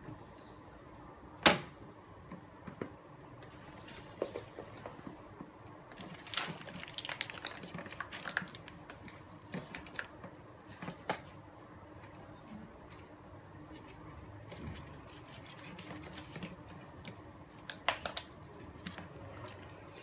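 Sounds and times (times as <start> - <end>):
plastic clicks and rustles: 5.9 - 11.3.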